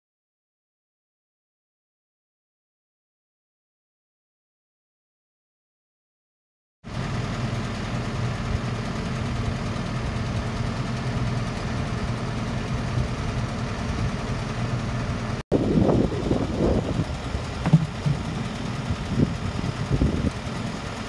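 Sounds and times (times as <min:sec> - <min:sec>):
vehicle engine humming: 0:06.9 - 0:21.0.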